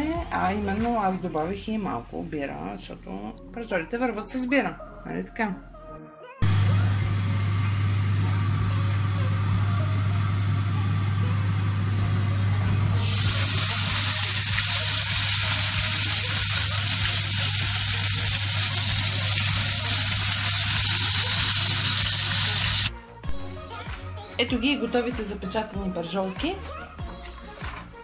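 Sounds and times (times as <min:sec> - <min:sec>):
steady low hum: 0:06.4 - 0:13.0
oil sizzling in a frying pan: 0:13.0 - 0:22.9.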